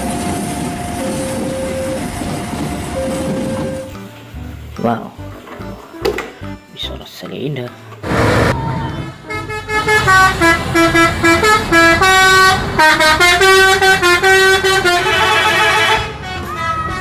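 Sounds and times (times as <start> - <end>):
musical bus horn playing a tune: 8.8 - 17.0.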